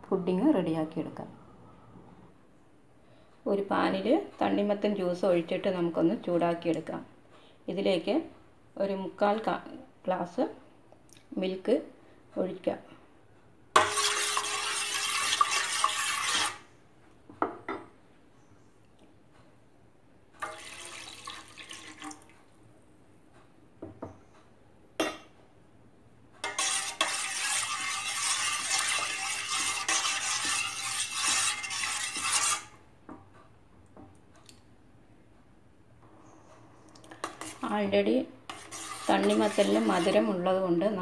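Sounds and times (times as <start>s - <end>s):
milk pouring and splashing: 20.5s - 22.4s.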